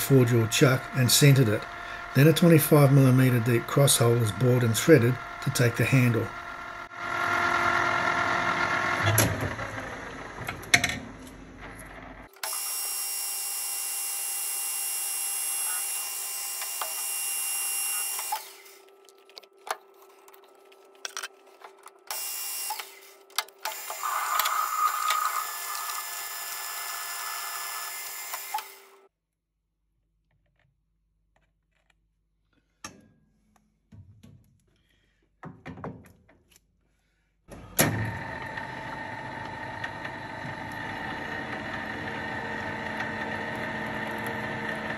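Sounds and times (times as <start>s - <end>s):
metal lathe running: 0.0s - 11.0s, 11.9s - 18.8s, 22.1s - 29.0s, 37.8s - 44.9s.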